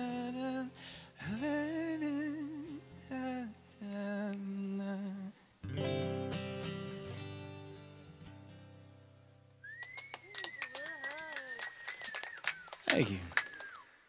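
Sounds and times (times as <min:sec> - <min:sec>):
man singing with vibrato: 0:00.0 - 0:05.5
acoustic guitar: 0:00.0 - 0:10.2
strummed guitar chord: 0:05.7 - 0:08.7.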